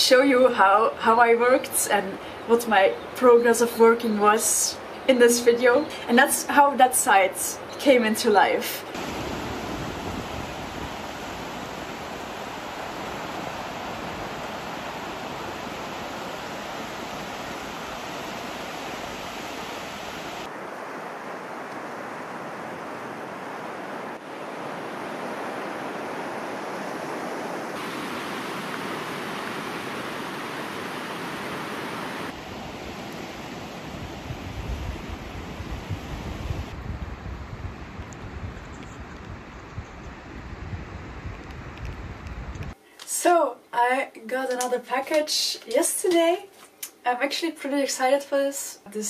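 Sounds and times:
waves breaking on shore: 8.8s - 37.2s
wind buffeting microphone: 9.0s - 20.5s, 31.3s - 42.8s.

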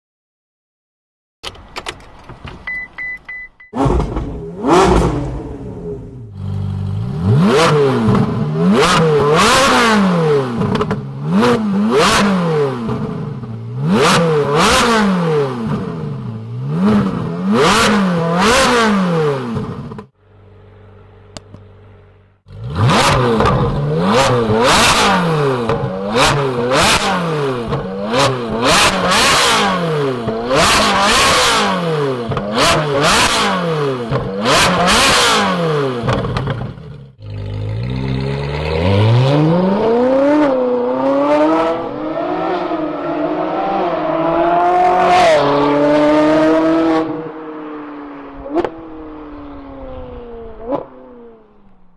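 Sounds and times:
short beep: 2.6s - 3.8s
car engine revving: 3.8s - 20.1s, 21.2s - 51.7s.

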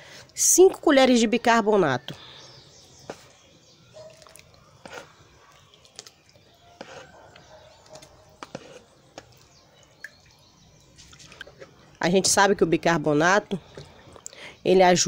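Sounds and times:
metal spoon scraping powder: 4.8s - 5.2s, 6.7s - 7.4s, 8.0s - 9.3s.

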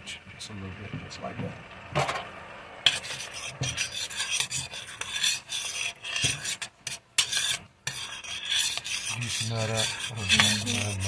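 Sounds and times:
utensil scraping saucepan: 2.9s - 11.0s.

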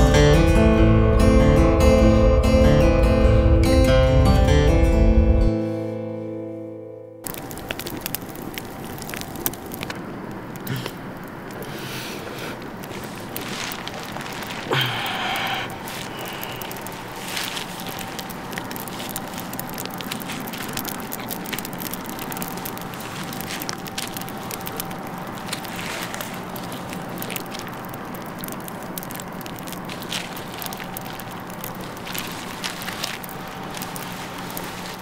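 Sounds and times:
steady hum: 0.0s - 35.0s
fire crackling in a metal barrel: 7.2s - 35.0s.

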